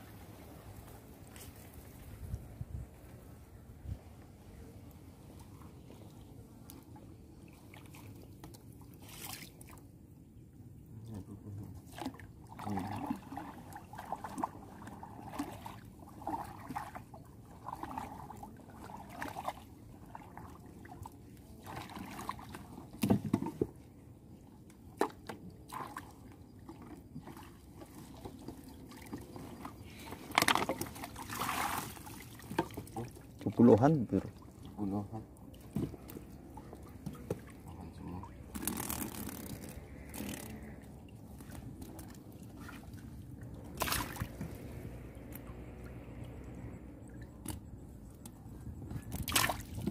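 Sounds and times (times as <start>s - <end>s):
water sloshing and trickling: 0.0s - 49.9s
knocks and splashes: 11.8s - 23.8s, 24.8s - 47.8s, 48.8s - 49.9s.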